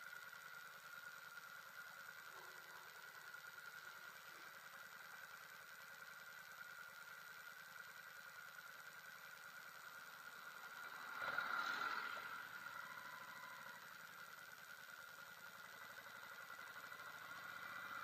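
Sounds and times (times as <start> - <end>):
motorcycle idling: 0.0 - 18.0
passing vehicle: 10.8 - 13.8.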